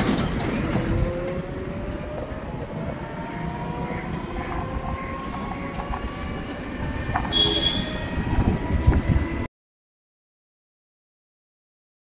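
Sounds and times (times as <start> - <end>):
road rumble: 0.0 - 9.5.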